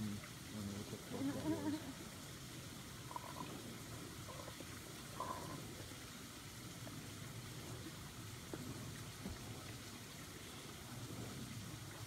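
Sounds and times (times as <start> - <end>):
faint outdoor hiss: 0.0 - 12.0.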